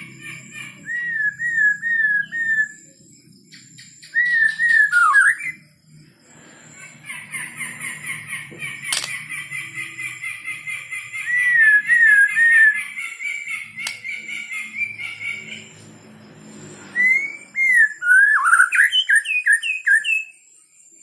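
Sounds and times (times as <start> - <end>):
bird whistling song: 0.0 - 5.9, 6.5 - 21.0
bird chattering notes: 6.7 - 15.9
sharp click: 8.9 - 9.2, 13.8 - 14.1.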